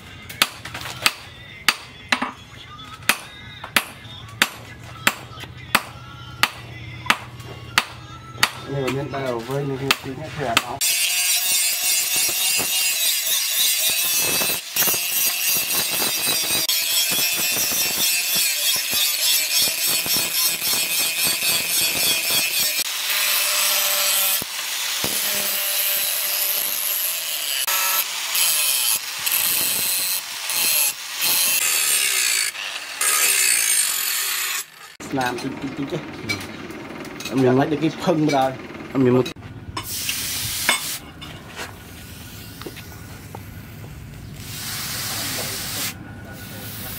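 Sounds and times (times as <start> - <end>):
angle grinder grinding steel: 8.2 - 43.4
low motor hum: 35.1 - 39.8.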